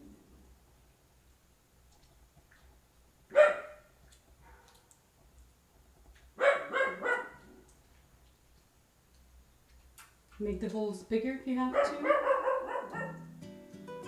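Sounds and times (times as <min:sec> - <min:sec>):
distant dog barking: 0:03.3 - 0:04.8, 0:06.4 - 0:07.6, 0:11.7 - 0:13.3
dog barking: 0:03.3 - 0:04.8, 0:06.4 - 0:07.6, 0:11.7 - 0:13.3.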